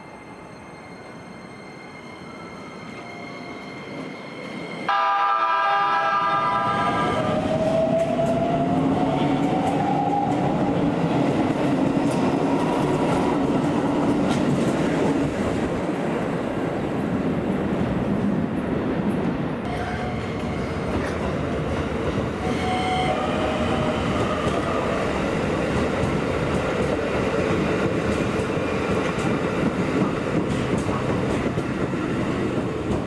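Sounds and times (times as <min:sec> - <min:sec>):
loud tonal signal: 0:22.4 - 0:24.2
train cars clattering on rails: 0:25.6 - 0:33.0.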